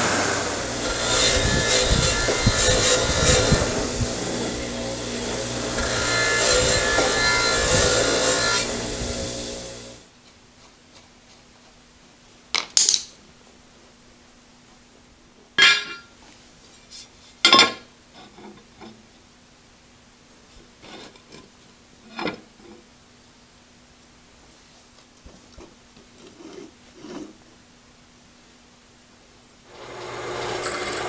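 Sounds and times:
wire wheel brushing steel: 0.0 - 10.1, 29.8 - 31.0
metallic clanks: 15.6 - 16.1.

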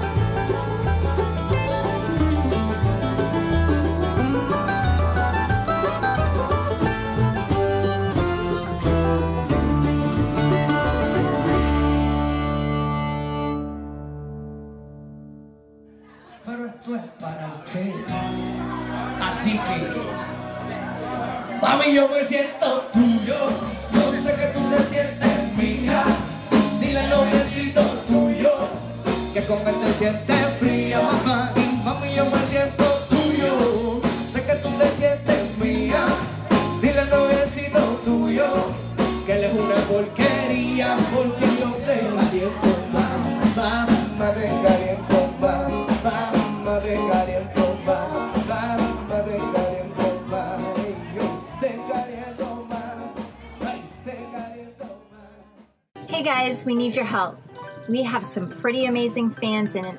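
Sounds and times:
song with singing over beat: 20.4 - 55.7.

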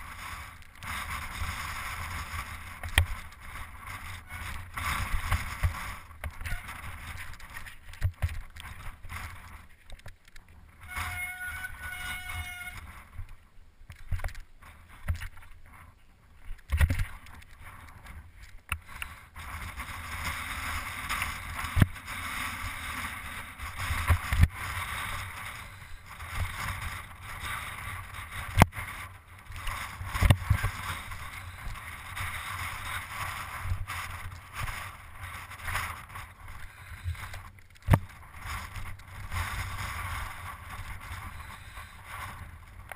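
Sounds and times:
wind on microphone: 0.0 - 9.7, 16.6 - 42.9
bicycle rattling over rocks: 0.0 - 42.9.

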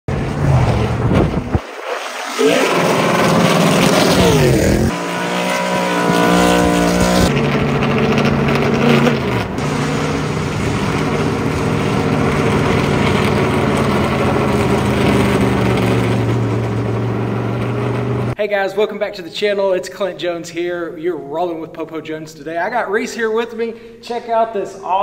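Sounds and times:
race car engine: 0.1 - 18.4.

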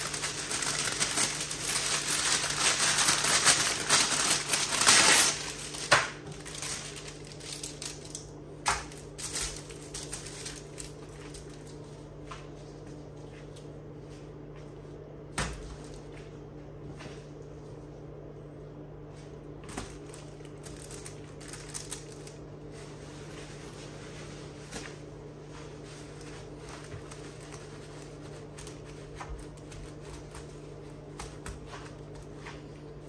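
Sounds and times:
paper crinkling and rustling: 0.0 - 12.6, 19.6 - 32.8
steady low hum: 0.0 - 33.0.

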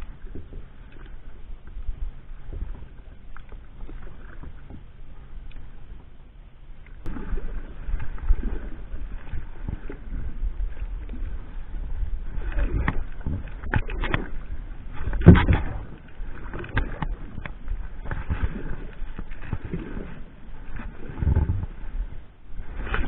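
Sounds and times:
paddle splashing in water: 0.0 - 6.2, 6.8 - 23.0
paddle knocking against boat: 15.0 - 16.0.

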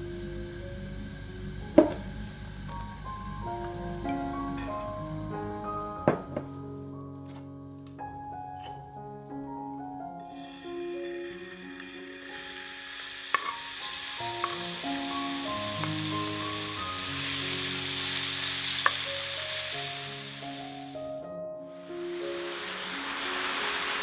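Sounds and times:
mushroom sizzling in oil: 10.3 - 21.1, 21.9 - 24.0.

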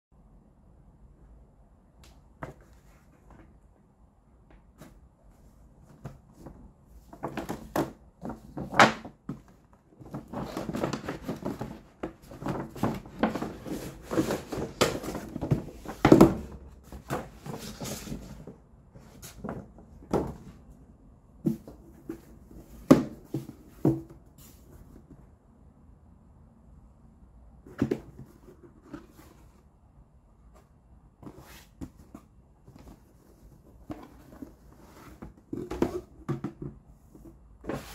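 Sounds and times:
cardboard box sliding: 10.0 - 19.6, 37.1 - 37.9.

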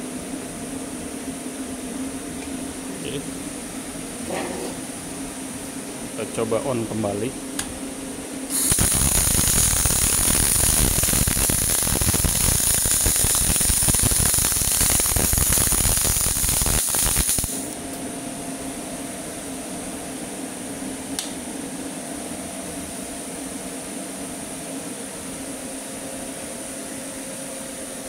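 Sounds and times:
machine hum: 0.0 - 23.6
welding arc crackling and hissing: 8.5 - 17.8.

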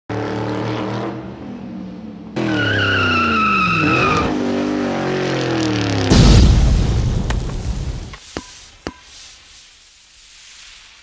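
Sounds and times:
car engine revving: 0.1 - 6.1
tyres screeching: 2.4 - 4.4.

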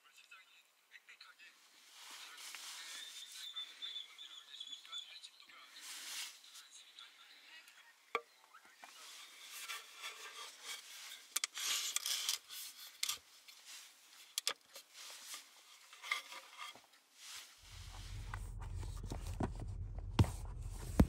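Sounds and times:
rustling and rubbing: 1.7 - 3.6, 5.7 - 6.7, 8.8 - 21.0.

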